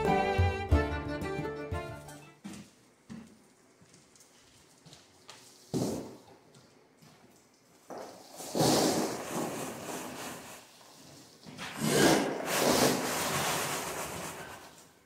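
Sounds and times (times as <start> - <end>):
earth pouring from wheelbarrow: 8.1 - 11.2, 11.8 - 14.8.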